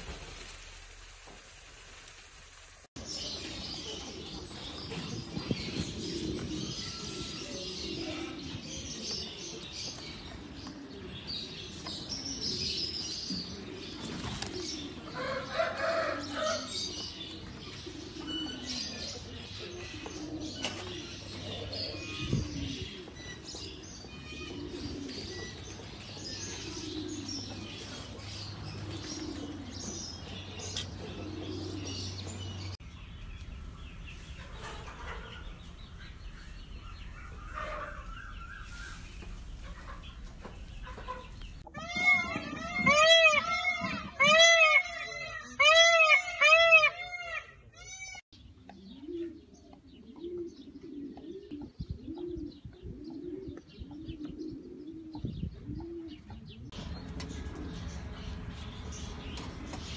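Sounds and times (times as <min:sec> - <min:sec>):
bird chatter and clucking: 0:00.0 - 0:47.7, 0:48.4 - 0:59.9
peacock calling: 0:33.5 - 0:40.2, 0:40.8 - 0:48.3.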